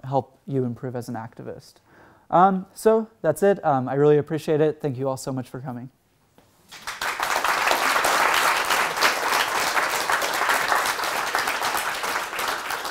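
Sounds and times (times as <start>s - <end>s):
audience applauding: 6.7s - 12.9s.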